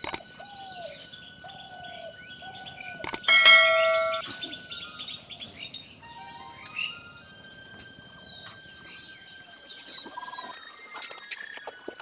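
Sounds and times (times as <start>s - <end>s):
mouse clicks: 0.0s - 0.2s, 3.0s - 3.3s
faint birds chirping: 0.0s - 12.0s
bright bell ding: 3.3s - 4.5s.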